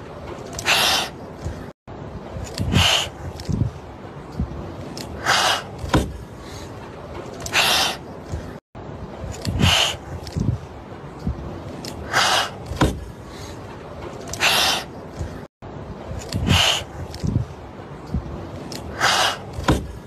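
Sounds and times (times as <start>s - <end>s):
kittens hissing: 0.6s - 1.2s, 2.7s - 3.2s, 5.2s - 5.8s, 9.5s - 10.0s, 12.1s - 12.6s, 14.3s - 14.9s, 16.4s - 16.9s, 18.9s - 19.7s.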